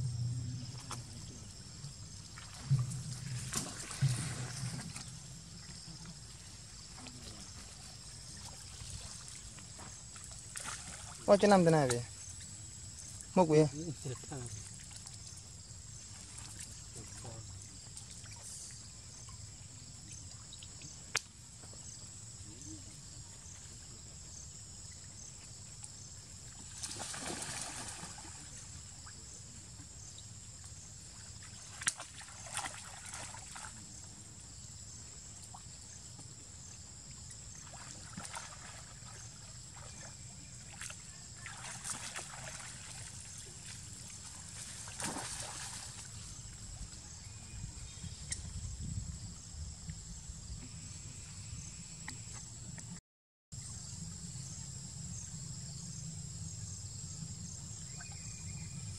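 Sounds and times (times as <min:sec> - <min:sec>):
water sloshing: 0:00.6 - 0:15.4, 0:26.5 - 0:28.9, 0:31.1 - 0:34.0, 0:37.2 - 0:46.9.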